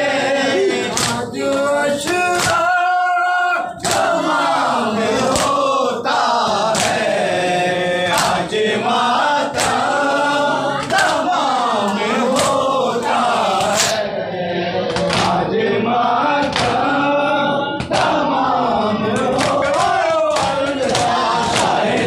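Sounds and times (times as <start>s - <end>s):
men chanting in unison: 0.0s - 22.0s.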